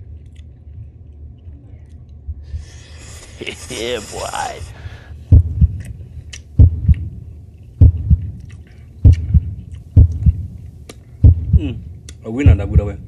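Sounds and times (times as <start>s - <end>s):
heartbeat double thump: 5.3s - 5.9s, 6.6s - 8.4s, 9.0s - 10.6s, 11.2s - 13.0s.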